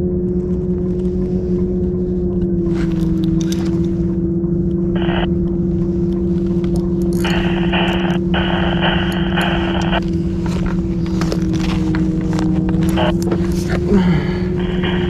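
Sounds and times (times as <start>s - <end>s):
boat motor droning: 0.0s - 15.0s.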